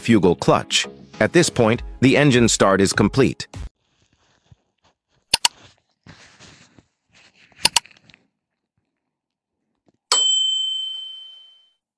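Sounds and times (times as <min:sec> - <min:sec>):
double mouse clicks: 0:05.3 - 0:05.6, 0:07.6 - 0:07.8
bright bell ding: 0:10.1 - 0:11.7.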